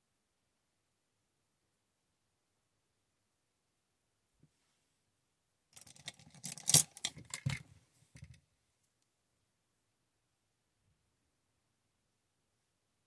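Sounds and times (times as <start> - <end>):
brushes and tools clicking: 5.8 - 7.6.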